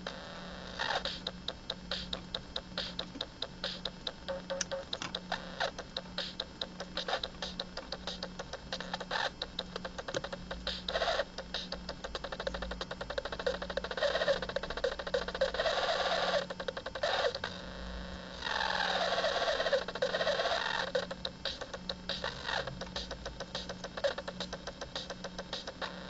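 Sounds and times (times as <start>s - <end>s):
rapid electronic clicking: 0.0s - 17.5s, 18.4s - 26.0s
harsh electronic buzzing: 0.0s - 26.0s
crackling clicks: 1.2s - 13.4s.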